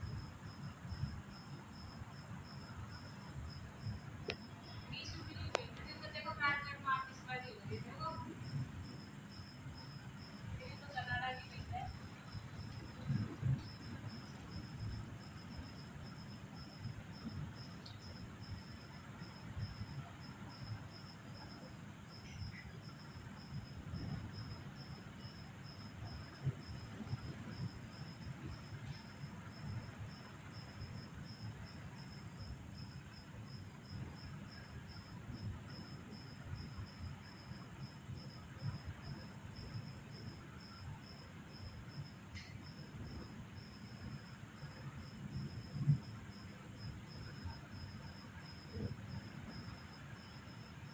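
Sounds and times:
low storm rumbling: 0:00.0 - 0:20.0
crickets chirping: 0:00.0 - 0:50.9.

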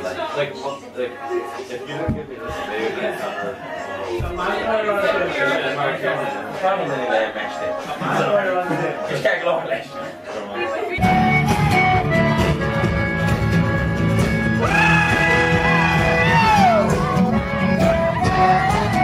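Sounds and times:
rock band music: 0:11.0 - 0:19.0.

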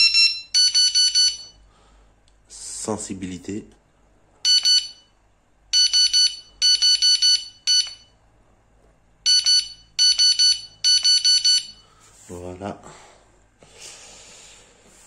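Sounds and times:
high-pitched electronic beeps: 0:00.0 - 0:01.5.

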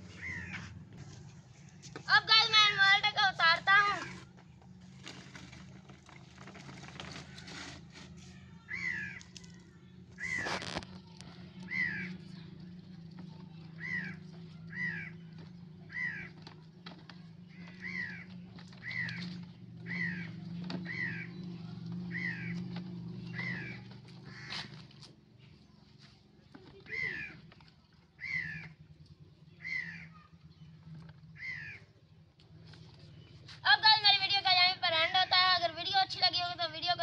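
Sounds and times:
bird calling: 0:00.0 - 0:00.8, 0:08.6 - 0:25.1, 0:26.5 - 0:34.5.

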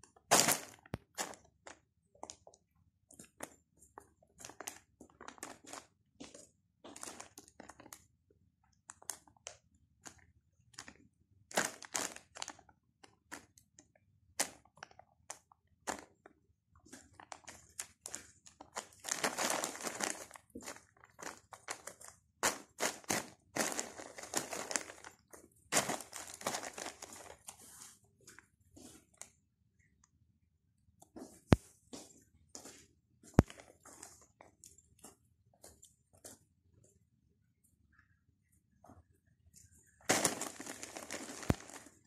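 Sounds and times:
plastic bag crinkling: 0:00.2 - 0:02.4, 0:04.2 - 0:06.0, 0:11.5 - 0:13.5, 0:16.9 - 0:27.9, 0:40.0 - 0:42.0.

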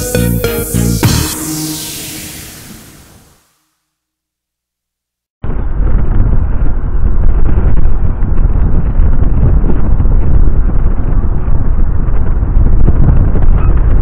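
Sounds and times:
wind buffeting microphone: 0:05.4 - 0:14.0.

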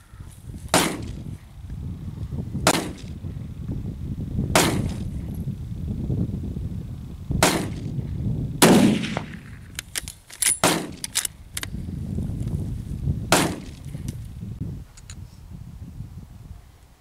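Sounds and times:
rifle shots: 0:00.7 - 0:01.2, 0:02.7 - 0:03.1, 0:04.6 - 0:05.0, 0:07.4 - 0:07.8, 0:08.6 - 0:09.7, 0:10.4 - 0:11.2, 0:13.3 - 0:13.8
rifle bolt clicking: 0:09.8 - 0:11.7.

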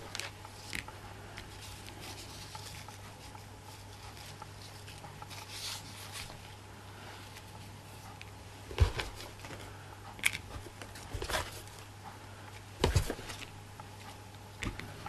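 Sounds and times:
ribbons rustling in hands: 0:00.0 - 0:06.6
steady low hum: 0:00.0 - 0:15.0.

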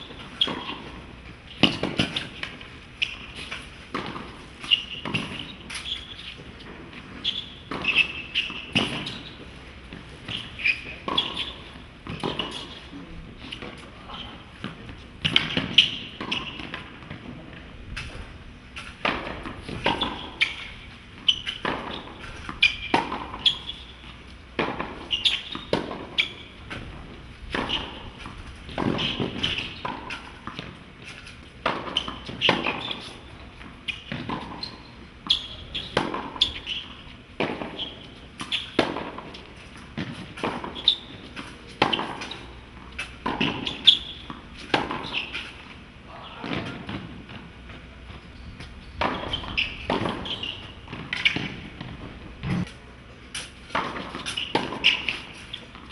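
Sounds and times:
shoes on court: 0:00.0 - 0:55.9
tennis ball hits: 0:00.4 - 0:02.6, 0:37.4 - 0:45.4, 0:49.0 - 0:52.6.

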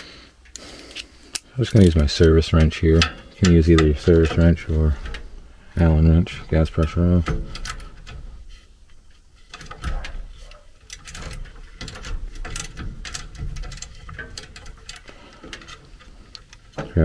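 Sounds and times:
wrench clicking on metal: 0:00.0 - 0:05.2.

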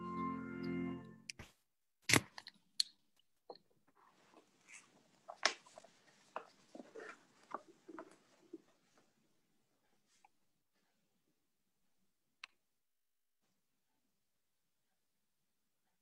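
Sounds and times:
soft rustling: 0:04.0 - 0:11.0.

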